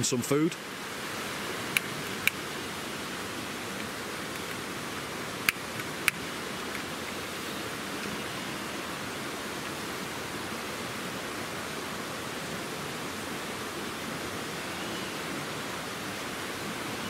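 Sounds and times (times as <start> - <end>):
flowing water rushing: 0.0 - 17.0.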